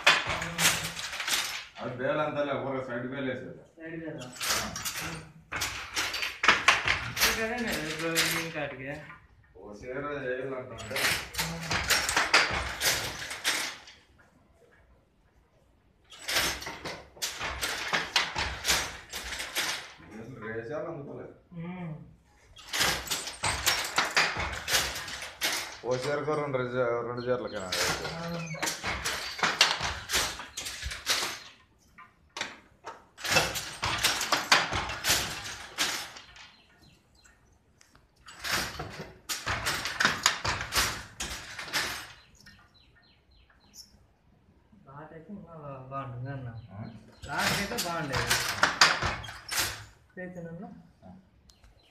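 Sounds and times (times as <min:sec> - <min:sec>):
scraping and knocking: 0:00.0 - 0:02.0, 0:04.2 - 0:10.0, 0:10.7 - 0:14.1, 0:16.1 - 0:20.4, 0:22.6 - 0:36.8, 0:38.2 - 0:42.6, 0:47.0 - 0:50.0.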